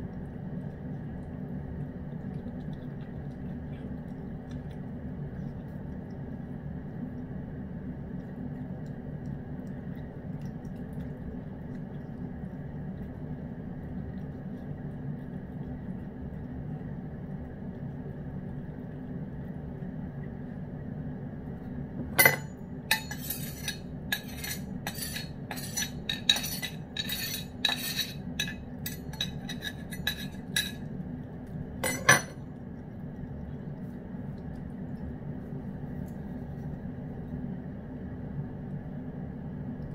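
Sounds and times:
steady low hum: 0.0s - 39.9s
metal utensil scraping bowl: 22.2s - 30.8s, 31.8s - 32.4s.

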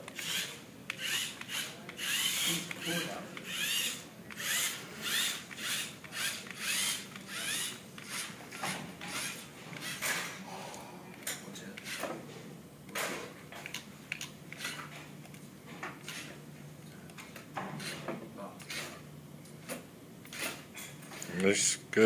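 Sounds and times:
electric gear motors whirring: 0.0s - 10.3s, 11.8s - 12.2s, 13.6s - 15.0s, 16.0s - 16.4s, 17.8s - 19.0s
mechanical clicks and rubbing: 12.9s - 15.4s.

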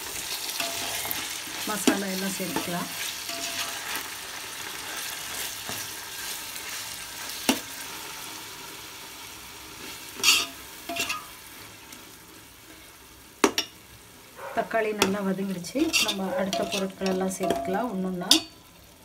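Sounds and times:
vegetables sizzling in oil: 0.0s - 19.0s
metal spoon stirring and scraping: 0.2s - 7.3s, 10.2s - 11.4s, 14.6s - 18.6s
spoon knocking on pot: 15.9s - 18.6s.

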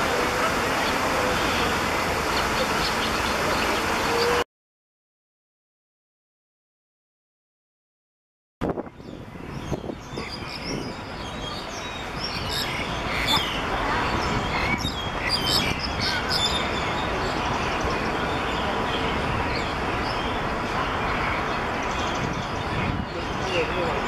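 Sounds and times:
starlings chirping: 8.8s - 24.0s.

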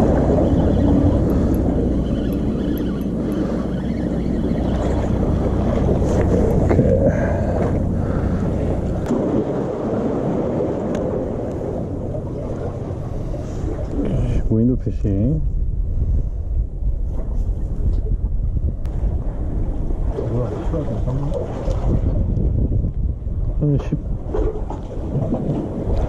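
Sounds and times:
sea surf washing: 0.0s - 14.6s, 19.0s - 22.0s
wind noise on microphone: 0.0s - 26.0s.

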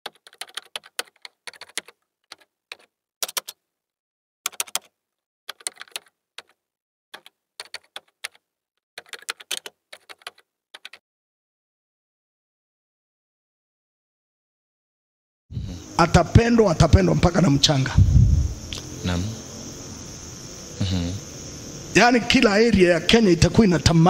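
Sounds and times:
keyboard key clicks: 0.1s - 3.6s, 4.5s - 4.9s, 5.5s - 6.6s, 7.2s - 8.4s, 9.0s - 11.0s.

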